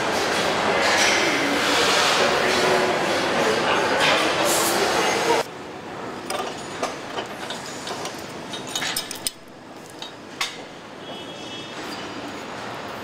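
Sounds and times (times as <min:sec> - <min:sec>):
factory hall noise: 0:00.0 - 0:13.0.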